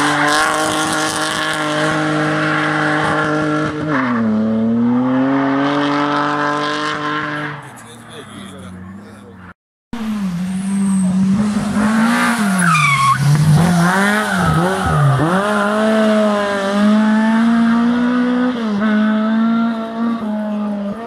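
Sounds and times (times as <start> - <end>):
rally car engine revving: 0.0 - 21.0
tyre squeal: 12.4 - 15.4.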